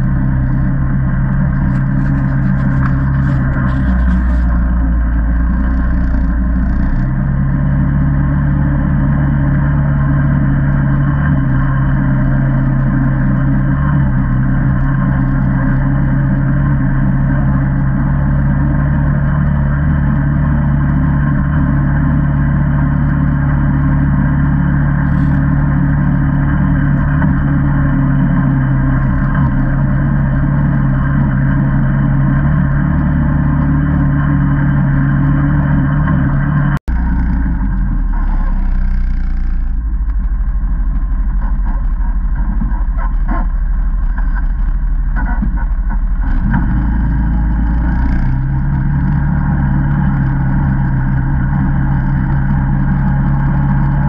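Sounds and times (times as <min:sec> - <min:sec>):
quad bike engine running: 0:00.0 - 0:54.0
finger scratching on camera: 0:01.4 - 0:04.8, 0:25.0 - 0:25.4, 0:36.9 - 0:39.9.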